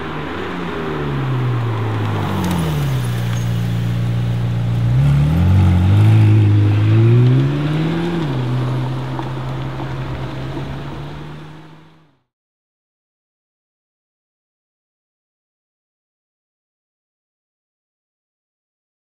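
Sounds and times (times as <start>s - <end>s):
car engine revving: 0.0s - 12.1s.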